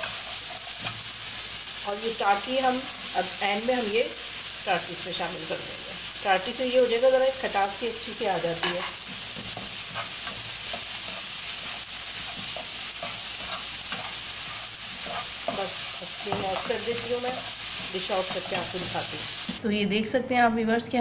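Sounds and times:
spatula scraping frying pan: 0.0 - 1.7, 8.4 - 19.6
food sizzling: 0.0 - 19.6.

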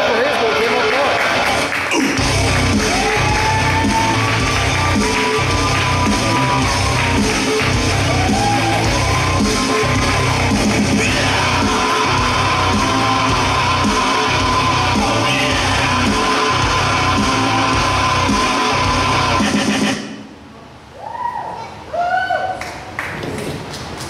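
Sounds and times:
electric guitar: 1.4 - 19.9
vocals singing and yelling: 1.9 - 20.1
steady drum beat: 2.0 - 20.0.

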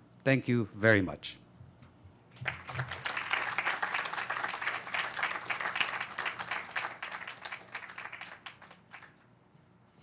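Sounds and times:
audience applauding: 2.4 - 9.2.

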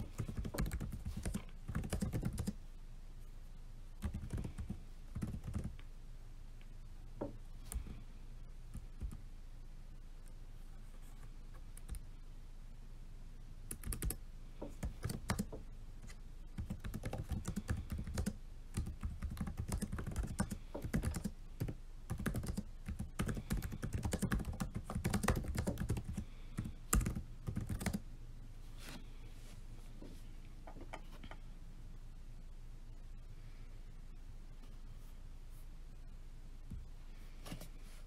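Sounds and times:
typing on laptop keyboard: 0.0 - 2.6, 4.0 - 5.8, 13.7 - 15.6, 16.6 - 28.0.

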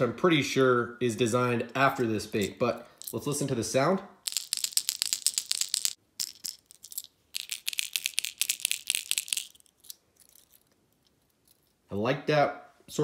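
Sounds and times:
fishing lure rattle clacking: 4.2 - 11.8.

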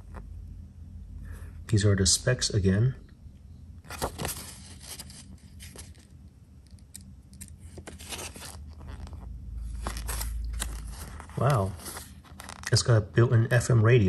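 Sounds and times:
low rumble: 0.0 - 2.3
paper pages rustling: 3.8 - 13.0.

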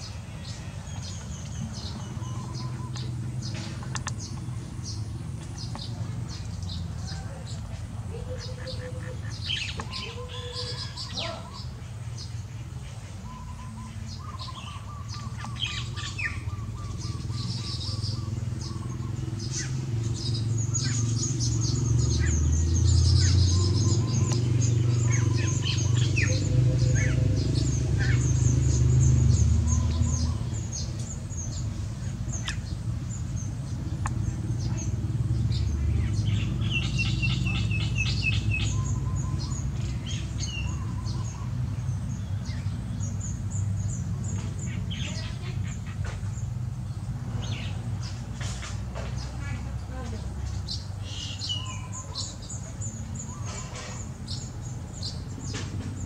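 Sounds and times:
birds chirping and chattering: 0.0 - 56.0.

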